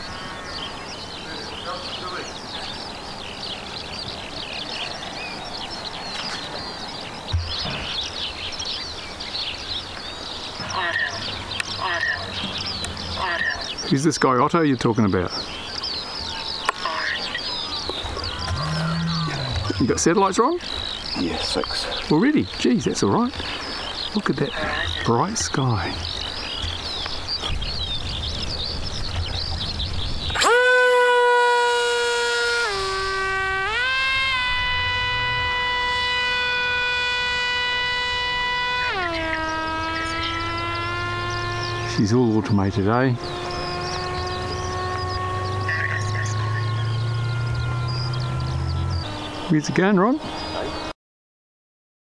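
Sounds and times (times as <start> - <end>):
small birds chirping: 0.0 - 30.5, 31.8 - 51.0
low thump: 7.3 - 8.0
electric motor and propeller whine: 30.3 - 50.9.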